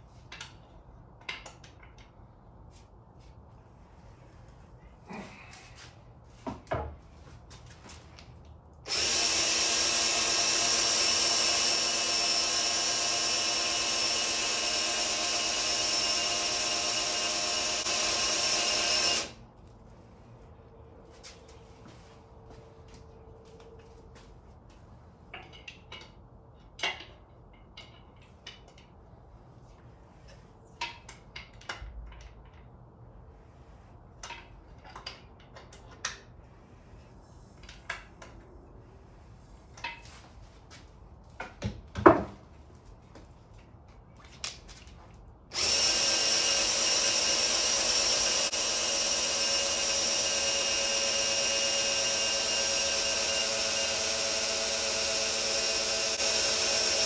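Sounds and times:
clicks and knocks of tool handling: 0.2s - 2.2s, 25.3s - 29.0s, 30.8s - 32.9s, 34.2s - 36.3s
cordless drill whining: 8.9s - 19.4s, 45.5s - 57.0s.

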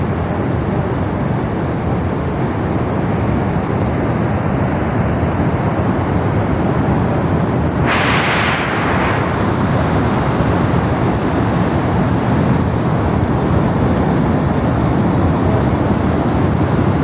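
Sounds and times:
harsh hiss: 7.8s - 12.0s.

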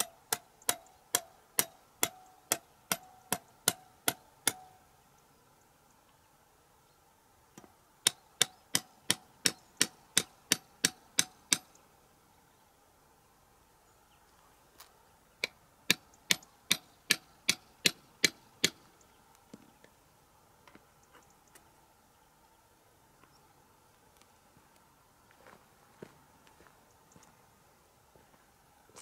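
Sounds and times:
hammer tapping metal stake: 0.0s - 4.8s, 7.6s - 11.8s, 15.4s - 18.8s.

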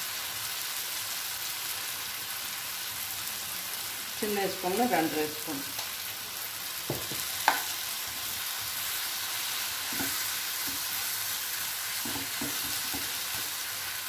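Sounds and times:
masala sizzling in frying pan: 0.0s - 14.0s
spoon scraping pan: 9.8s - 11.1s, 11.9s - 13.6s.

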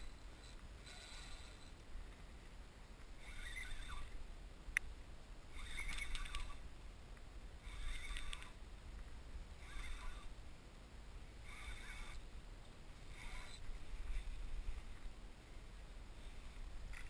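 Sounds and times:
low wind rumble: 0.0s - 17.0s
fishing reel whirring: 3.2s - 4.2s, 5.5s - 6.6s, 7.6s - 8.6s, 9.6s - 10.3s, 11.5s - 12.3s, 13.1s - 14.4s.

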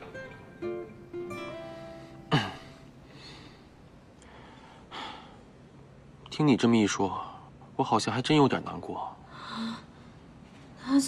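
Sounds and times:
soft acoustic guitar music: 0.0s - 3.8s.

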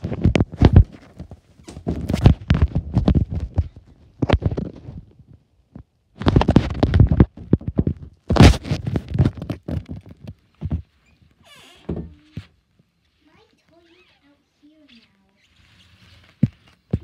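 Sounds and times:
rapid knocking and scratching: 0.0s - 5.1s, 6.2s - 11.0s.

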